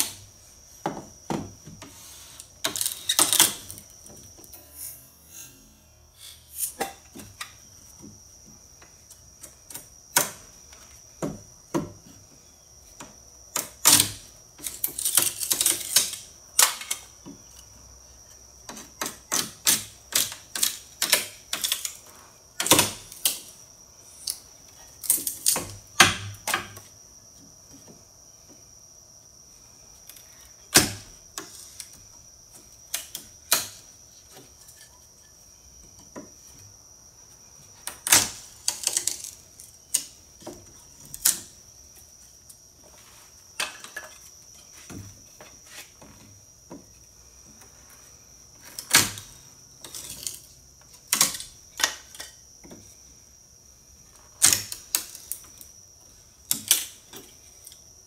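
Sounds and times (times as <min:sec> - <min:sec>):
wood splitting cracks: 0:13.5 - 0:17.0, 0:37.8 - 0:40.1, 0:48.6 - 0:50.5, 0:54.4 - 0:55.6.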